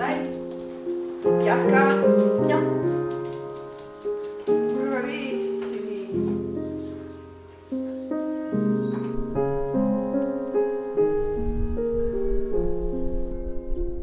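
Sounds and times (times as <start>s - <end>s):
slow piano music: 0.0s - 14.0s.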